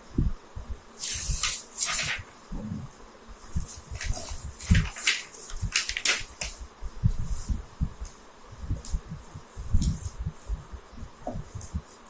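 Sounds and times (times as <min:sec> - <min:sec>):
paper rustling: 0:01.0 - 0:02.4, 0:03.5 - 0:06.6
soft low thumps: 0:02.5 - 0:02.9, 0:06.6 - 0:11.9.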